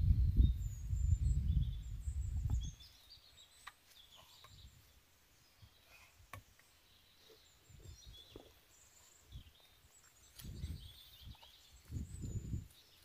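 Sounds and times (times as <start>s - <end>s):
low rumble on microphone: 0.0s - 2.9s
faint bird chirps: 0.0s - 13.0s.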